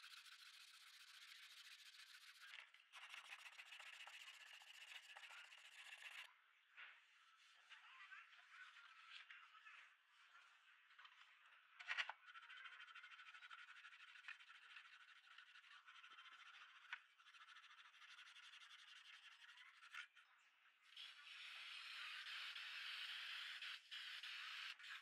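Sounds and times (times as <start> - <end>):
sandpaper rasping on plastic: 0.0 - 2.5, 12.3 - 19.9, 21.0 - 25.0.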